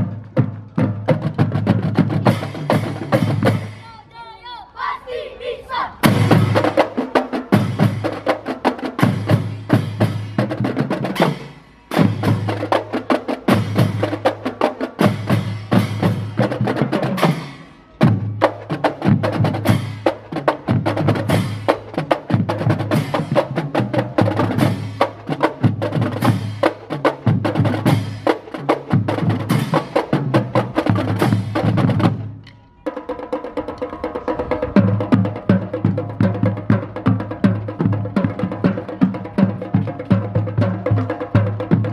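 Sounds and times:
snare drums: 0:00.0 - 0:04.1, 0:05.7 - 0:41.9
bass drums: 0:06.0 - 0:06.8.

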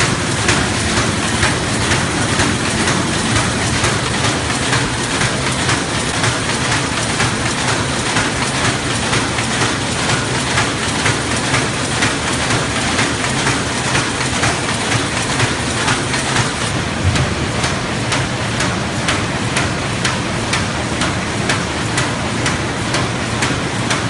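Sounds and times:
paper bag machine clattering: 0:00.0 - 0:16.7.

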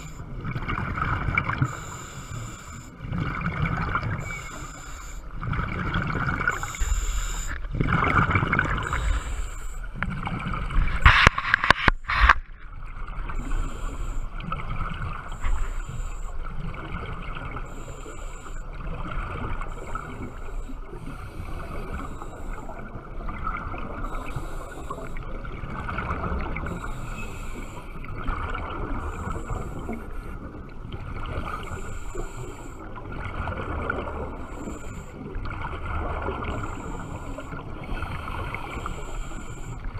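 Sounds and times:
underwater breathing bubbles: 0:00.0 - 0:39.9
regulator hiss: 0:06.5 - 0:07.6.

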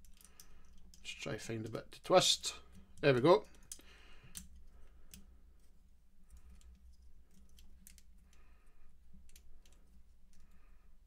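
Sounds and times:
plastic toy parts clicking: 0:00.0 - 0:01.1, 0:02.7 - 0:05.7, 0:06.3 - 0:08.4, 0:09.2 - 0:10.5.

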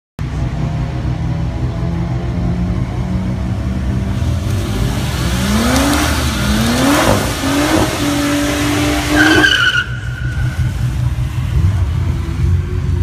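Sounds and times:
engine revving hard: 0:04.6 - 0:10.0
tyre squeal: 0:08.8 - 0:10.7.

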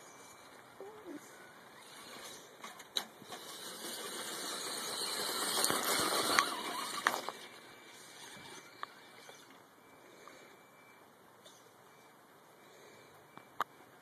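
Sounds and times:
toy truck electric motor and gears: 0:01.3 - 0:09.6.

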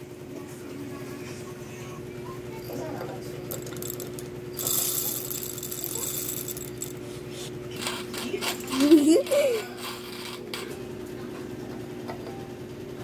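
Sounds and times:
coffee beans rattling into grinder: 0:03.4 - 0:10.7
clicks of beans settling: 0:03.5 - 0:07.0.

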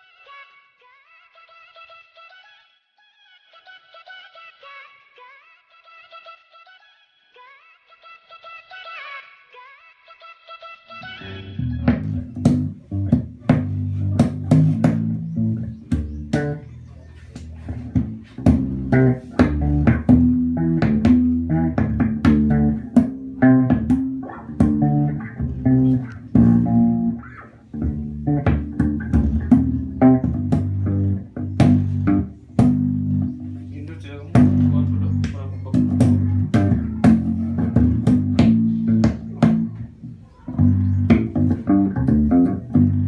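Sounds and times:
electric bass guitar: 0:11.0 - 0:43.0.

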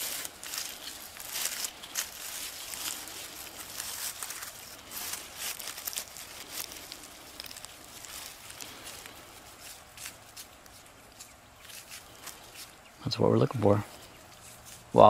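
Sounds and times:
crumbling earth crackling: 0:00.0 - 0:09.6
roots tearing: 0:00.0 - 0:12.8
dry leaf litter rustling: 0:00.0 - 0:15.0.

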